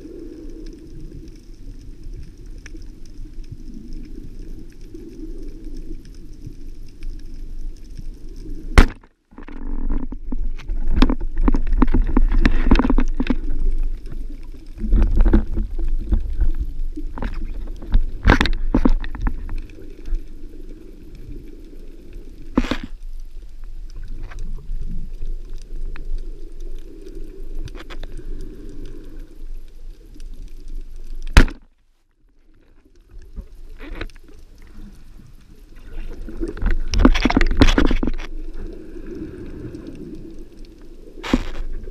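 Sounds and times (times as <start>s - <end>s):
faint clicks: 0.0s - 8.8s, 9.4s - 41.9s
water rushing and bubbling underwater: 0.0s - 41.9s.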